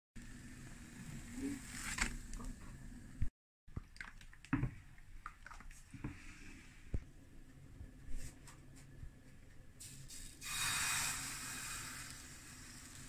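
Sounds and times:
squishy batter sounds: 0:03.7 - 0:07.0.

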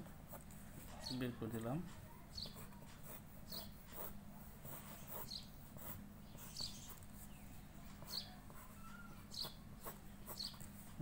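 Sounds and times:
pencil sketching on paper: 0:02.4 - 0:07.3, 0:09.4 - 0:10.9.

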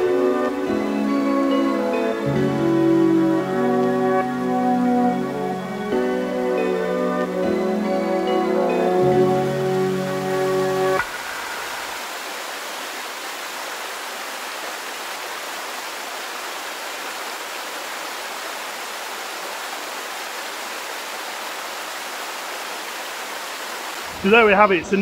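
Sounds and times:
waterfall pouring into a pool: 0:11.0 - 0:24.2.

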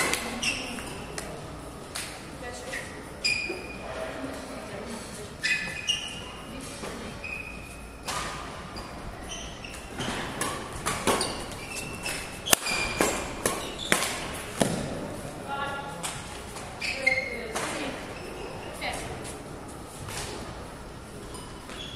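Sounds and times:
shoes squeaking on court floor: 0:00.0 - 0:01.4, 0:02.6 - 0:04.5, 0:05.3 - 0:20.5, 0:21.2 - 0:21.9
racket hitting shuttlecock: 0:10.0 - 0:15.0.

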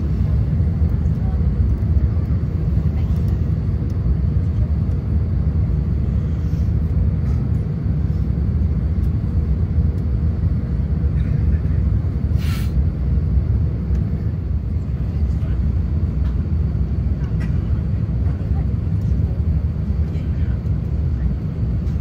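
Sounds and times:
aircraft cabin engine rumble: 0:00.0 - 0:22.0
brief hiss: 0:12.4 - 0:12.8.

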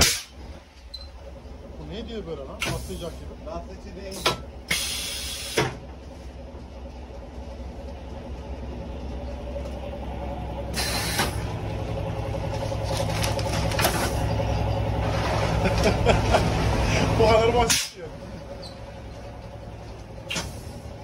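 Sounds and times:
bagging press humming: 0:00.0 - 0:21.0
air cylinder hiss: 0:04.7 - 0:05.8, 0:10.7 - 0:11.4.

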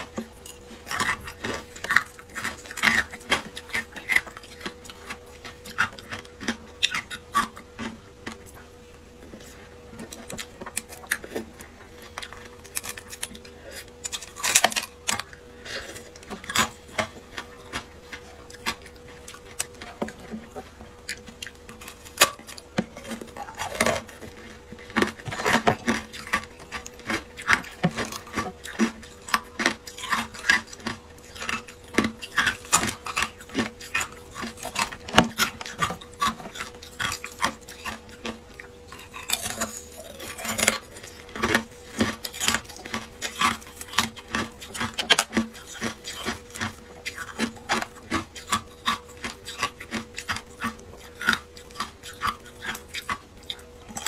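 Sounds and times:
thin ice crackling and snapping: 0:12.1 - 0:15.3, 0:21.7 - 0:54.0.

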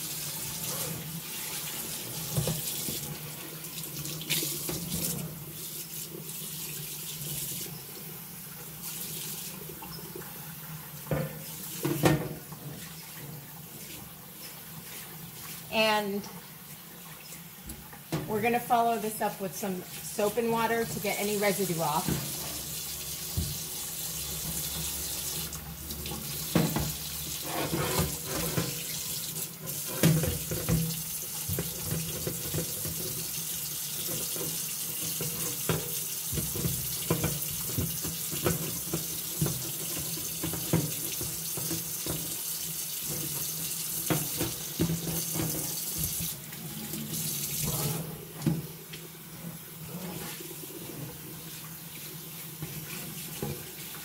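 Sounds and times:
pan clanking against sink: 0:26.4 - 0:28.8
sponge scrubbing: 0:27.3 - 0:29.0, 0:49.8 - 0:54.0.

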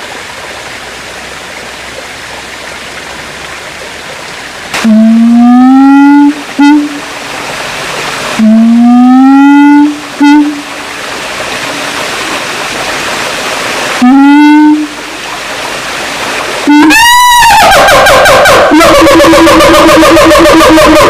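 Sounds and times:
gibbon hooting: 0:16.7 - 0:21.0.

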